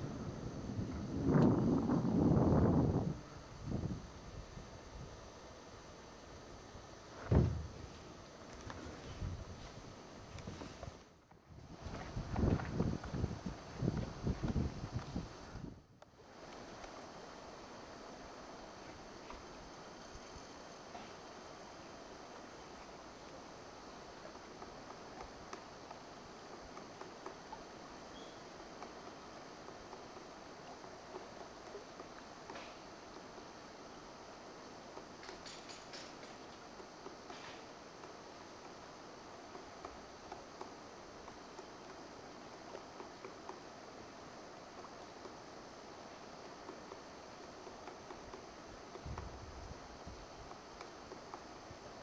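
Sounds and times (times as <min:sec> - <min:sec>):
steady background hiss: 0:00.0 - 0:52.0
woodpecker tapping on wood: 0:24.2 - 0:33.5, 0:34.8 - 0:43.8, 0:44.7 - 0:45.5, 0:46.1 - 0:49.4, 0:50.4 - 0:51.6.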